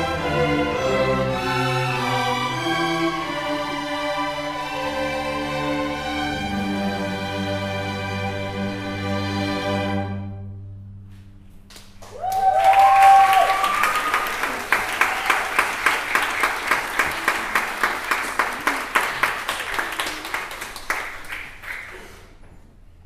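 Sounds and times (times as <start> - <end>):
short cheers: 12.0 - 15.8
audience applause: 12.0 - 22.1.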